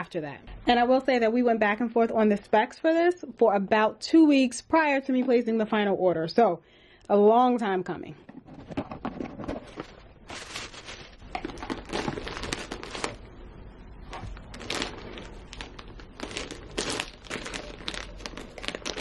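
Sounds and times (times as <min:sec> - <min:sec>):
plastic sleeve and tissue crinkling: 0:09.5 - 0:13.4, 0:14.0 - 0:19.0.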